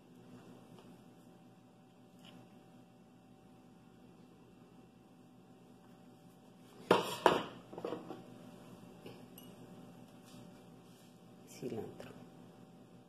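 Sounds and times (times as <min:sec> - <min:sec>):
dishes knocking on table: 0:06.9 - 0:08.2
tableware clinking: 0:09.3 - 0:09.6.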